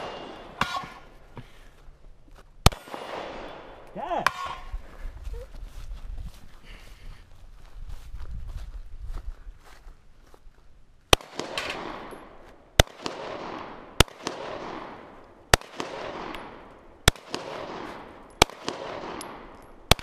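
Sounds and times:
handgun shots with echo: 11.2 - 20.0.

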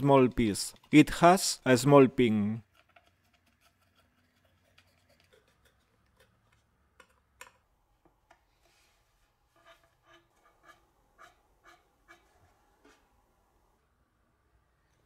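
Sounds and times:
screwdriver clicking and scraping: 2.6 - 7.6.

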